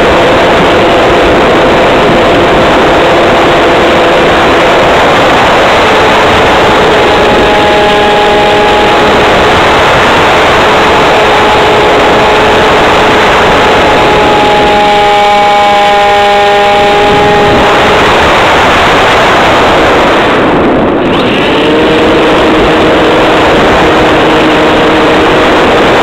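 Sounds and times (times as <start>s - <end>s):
model airplane motor droning: 0.0s - 18.0s
wind noise on microphone: 0.0s - 26.0s.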